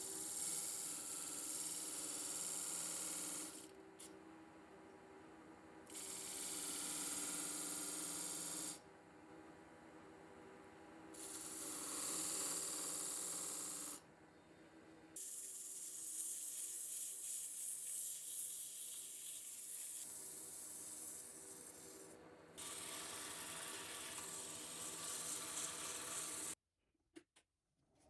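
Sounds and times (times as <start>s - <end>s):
tool and sandpaper rubbing wood: 0.0s - 3.7s, 6.0s - 8.8s, 11.2s - 14.0s, 15.2s - 26.6s.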